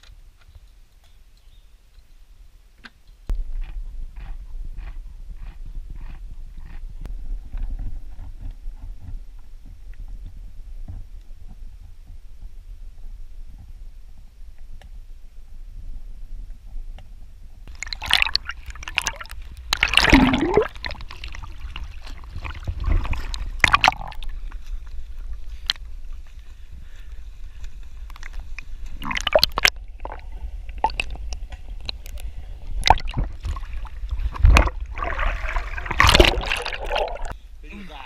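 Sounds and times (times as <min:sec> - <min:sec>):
low rumble of water on camera: 0:03.3 - 0:27.0, 0:27.8 - 0:37.4
water sloshing and gurgling: 0:17.6 - 0:26.3, 0:28.1 - 0:37.4.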